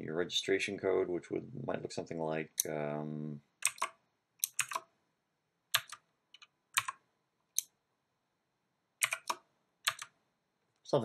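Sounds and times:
computer keyboard typing: 3.6 - 4.9, 5.7 - 7.0, 9.0 - 10.2.

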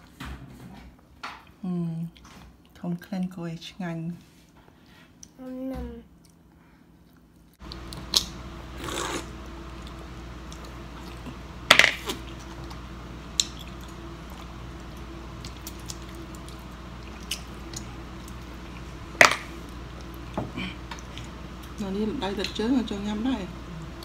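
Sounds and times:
steady low hum: 0.3 - 24.0
eating sounds: 6.1 - 11.4, 12.0 - 21.8.

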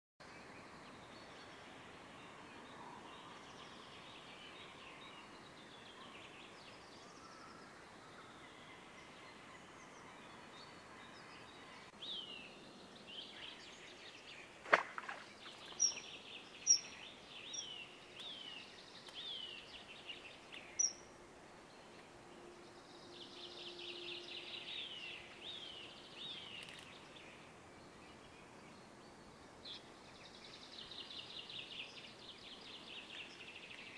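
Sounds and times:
bird calling: 15.7 - 18.4.

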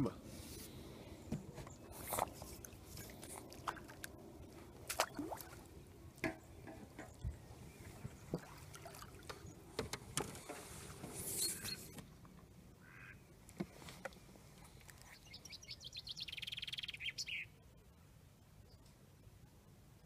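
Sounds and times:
fish splashing at water surface: 4.8 - 5.7.

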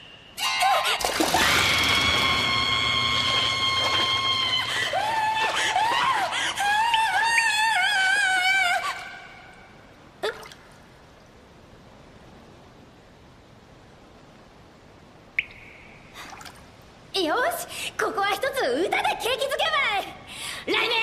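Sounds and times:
water drip plinking into bathwater: 15.4 - 16.6.

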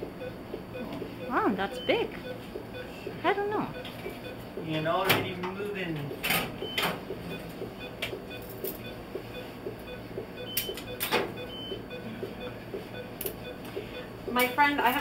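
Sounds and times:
quick regular beeping: 3.7 - 5.0, 6.6 - 15.0.

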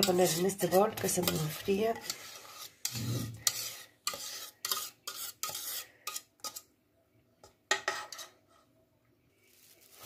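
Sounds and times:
utensil scraping pot: 0.0 - 6.7, 7.7 - 8.7.

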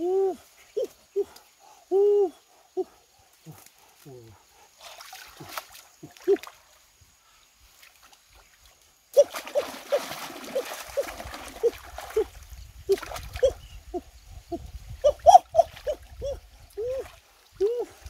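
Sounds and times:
hands splashing in water: 9.2 - 12.3
puppy whimpering yelps: 15.0 - 17.0.

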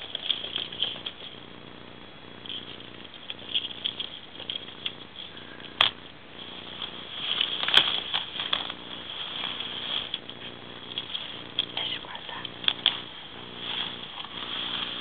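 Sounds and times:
ferrets scrambling in duct tube: 2.4 - 11.8.

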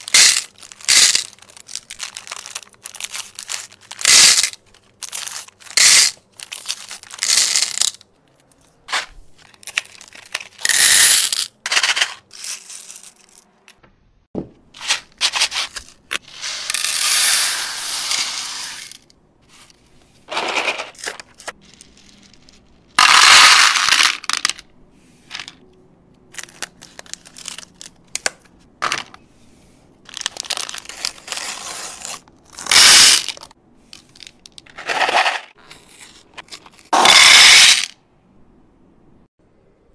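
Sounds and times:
wrappers crinkling and tearing: 0.0 - 7.3, 30.1 - 33.5
candies rattling into plastic tray: 0.0 - 8.1, 9.4 - 13.4, 20.3 - 24.6, 26.4 - 28.0, 30.1 - 35.6.

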